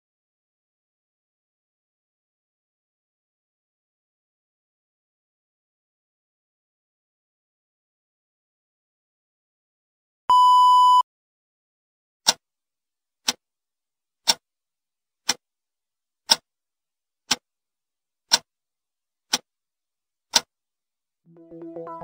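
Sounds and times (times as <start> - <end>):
clock ticking: 18.3 - 18.5.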